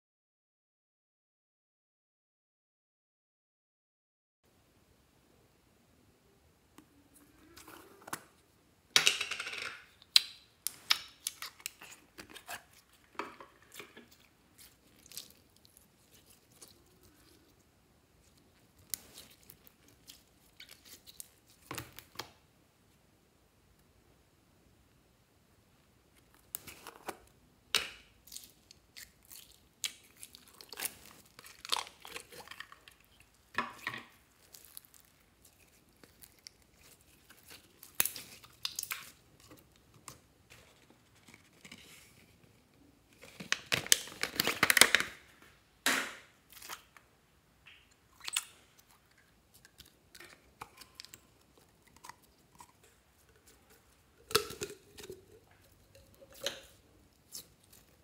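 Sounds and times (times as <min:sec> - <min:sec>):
slime clicking and rustling: 0:18.2 - 0:22.3, 0:34.2 - 0:40.2
plastic tubs opened: 0:43.2 - 0:47.0.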